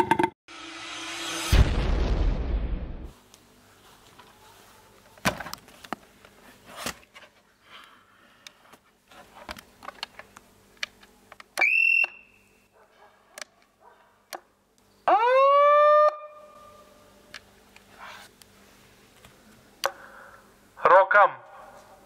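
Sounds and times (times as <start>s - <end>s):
megaphone siren rising: 15.1s - 16.6s.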